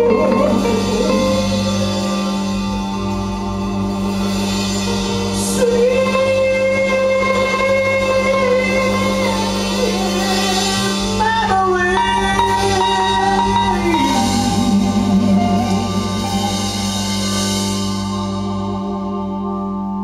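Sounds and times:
live band playing soul music: 0:00.0 - 0:20.0.

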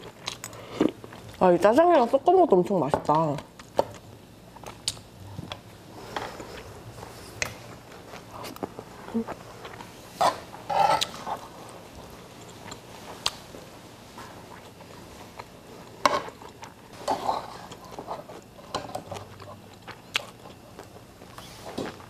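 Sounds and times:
close chewing with mouth smacks: 0:17.7 - 0:22.0.

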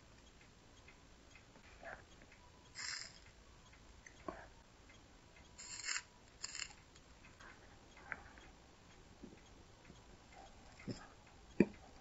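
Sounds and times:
solder sizzling: 0:02.6 - 0:03.4, 0:05.5 - 0:06.8.

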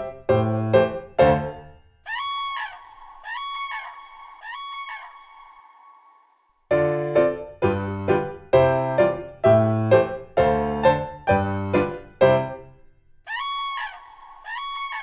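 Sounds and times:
bouncy piano music: 0:00.0 - 0:01.8, 0:06.7 - 0:12.8
crane calling: 0:02.1 - 0:06.4, 0:13.3 - 0:15.0.

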